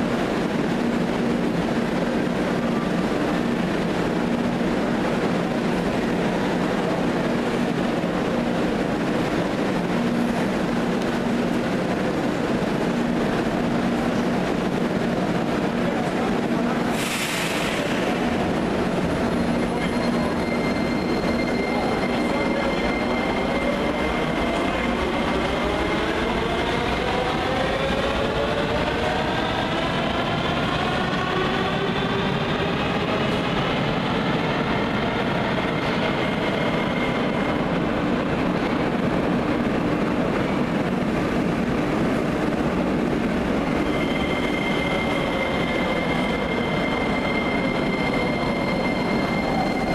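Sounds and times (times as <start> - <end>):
train wheels rumbling on rail: 0.0 - 49.9.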